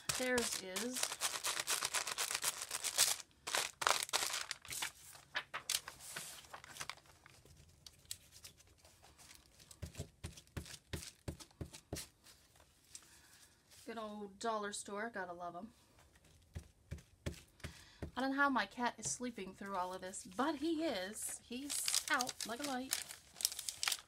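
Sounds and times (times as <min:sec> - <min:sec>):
paper crinkling and rustling: 0:00.0 - 0:13.9, 0:19.6 - 0:24.0.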